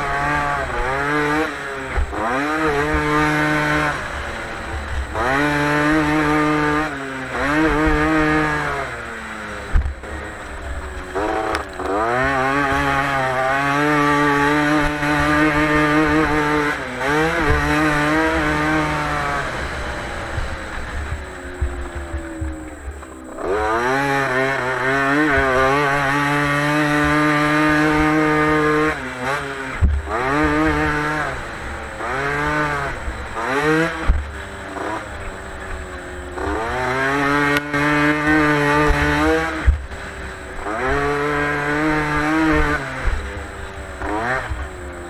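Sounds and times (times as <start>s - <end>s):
motocross bike engine revving: 0.0s - 45.0s
sharp knocks over bumps: 13.7s - 31.4s.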